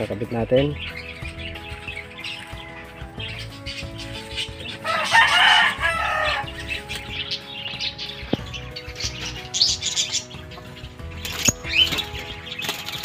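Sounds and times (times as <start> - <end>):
harsh bird calls: 0.0 - 13.0
birds flapping wings in cage: 11.2 - 13.0.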